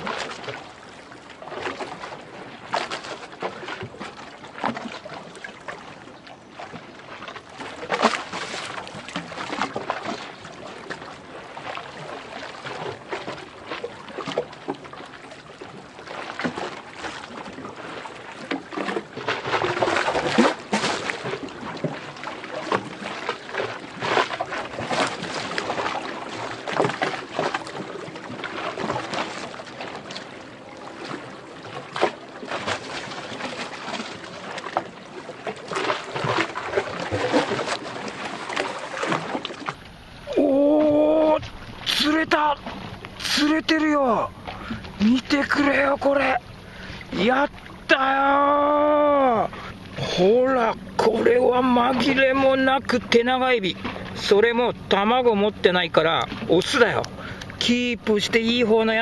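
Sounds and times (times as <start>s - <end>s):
water lapping against embankment: 0.0s - 59.0s
faint steady hum: 39.6s - 53.0s.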